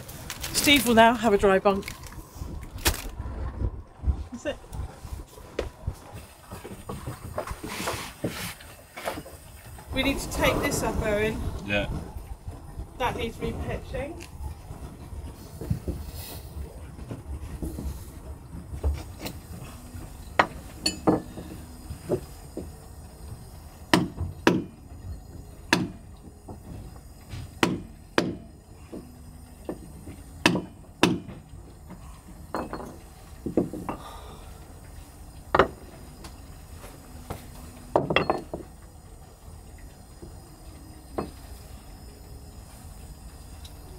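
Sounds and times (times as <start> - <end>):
hammer striking a tool: 20.4 - 21.5, 23.9 - 24.7, 25.7 - 26.0, 27.3 - 31.4, 35.5 - 35.8, 37.9 - 38.7.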